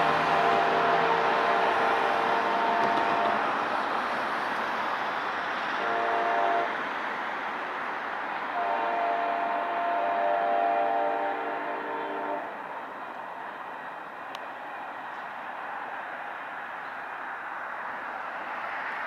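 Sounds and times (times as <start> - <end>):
locomotive horn blasts: 0.0 - 3.5, 5.8 - 6.8, 8.5 - 12.6
train rumbling on track: 0.0 - 19.0.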